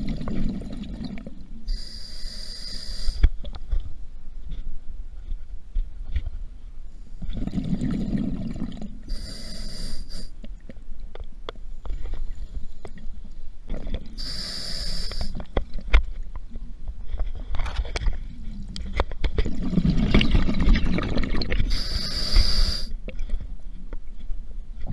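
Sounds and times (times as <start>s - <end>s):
exhaled air bubbling: 0.0s - 3.3s, 7.2s - 10.7s, 12.9s - 15.6s, 18.0s - 23.1s
regulator hissing on inhalation: 1.7s - 3.2s, 9.1s - 10.3s, 14.2s - 15.4s, 21.7s - 22.9s
small bubble clicks: 17.8s - 21.8s.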